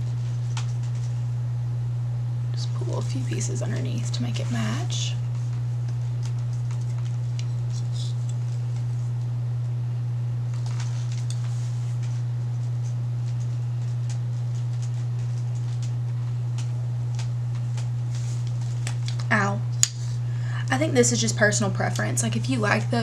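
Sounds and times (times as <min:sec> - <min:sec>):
steady low hum: 0:00.0 - 0:23.0
curling iron clicks and rustles: 0:12.8 - 0:19.3.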